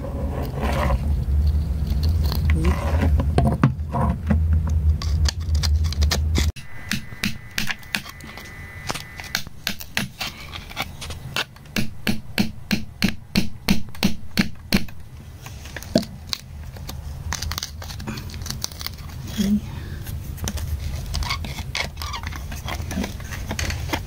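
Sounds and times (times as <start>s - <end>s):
metal pick scraping mineral crust: 5.0s - 11.7s, 20.7s - 24.0s.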